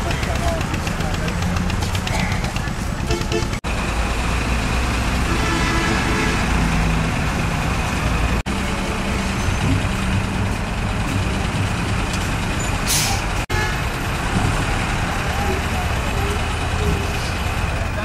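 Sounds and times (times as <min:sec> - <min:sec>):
diesel engines idling: 0:00.0 - 0:18.0
traffic noise: 0:00.0 - 0:18.0
air brake hiss: 0:12.9 - 0:13.3.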